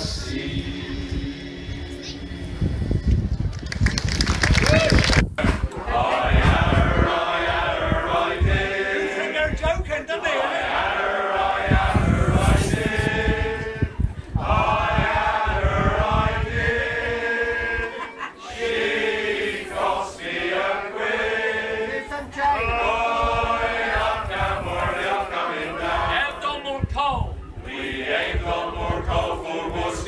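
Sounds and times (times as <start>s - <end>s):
choir singing: 0.0s - 3.0s, 5.7s - 9.5s, 10.1s - 26.4s, 27.6s - 30.0s
low rumble: 0.0s - 8.7s.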